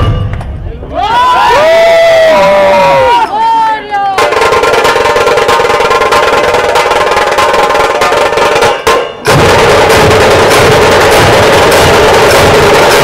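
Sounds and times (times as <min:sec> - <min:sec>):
fast festival drumming: 0:04.1 - 0:13.0.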